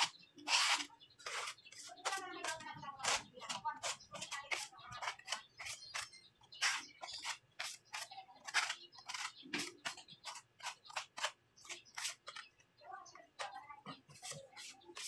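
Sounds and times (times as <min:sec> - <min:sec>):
hand strokes scraping on a wall: 0:00.0 - 0:05.7.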